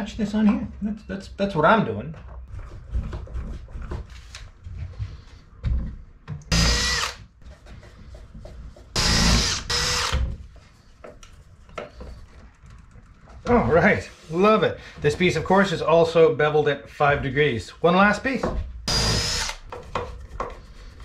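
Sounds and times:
cordless drill drilling into wood: 6.5 - 7.2, 9.0 - 10.2, 18.9 - 19.6.

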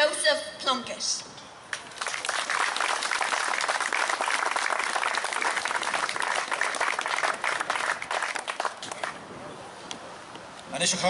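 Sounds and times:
audience applauding: 1.8 - 9.2.

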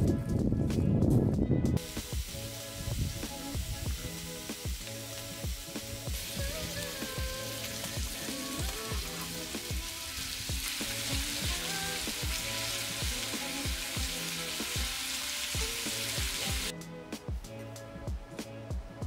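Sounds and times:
meat sizzling in a skillet: 1.8 - 16.7.

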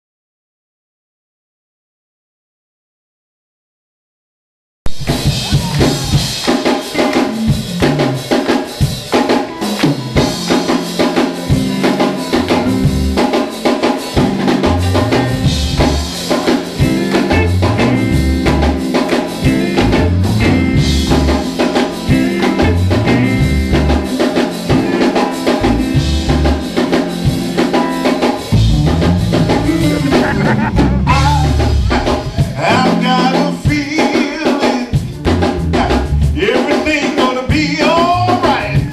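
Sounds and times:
drum kit with snare and cymbals: 4.9 - 38.9
guitar: 4.9 - 38.9
bass line: 7.0 - 8.3, 9.6 - 13.4, 14.1 - 27.6, 28.4 - 33.8, 35.0 - 36.6, 37.5 - 38.9.

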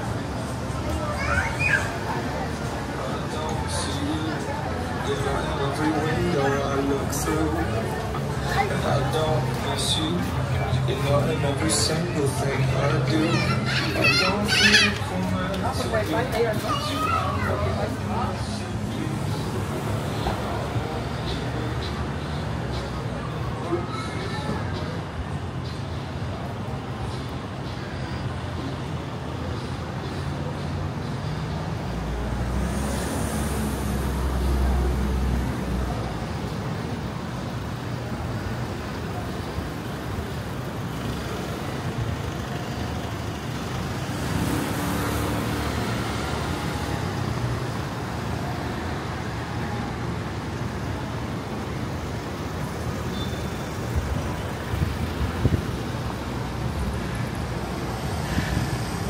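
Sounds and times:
traffic road noise: 0.0 - 59.0.

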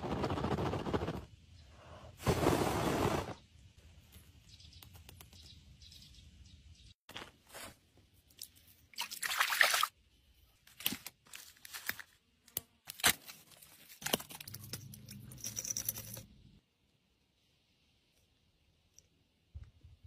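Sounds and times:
wet squelch in mud: 8.3 - 9.9.

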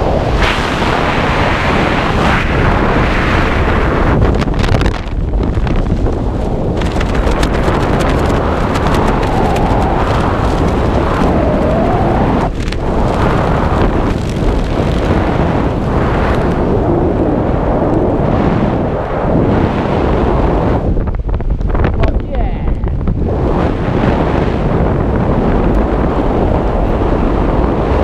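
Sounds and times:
wind rushing over microphone: 0.0 - 28.0.

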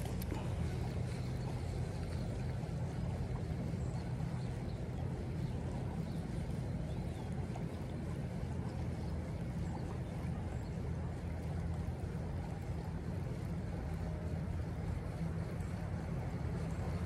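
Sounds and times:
creek flowing: 0.0 - 17.0.

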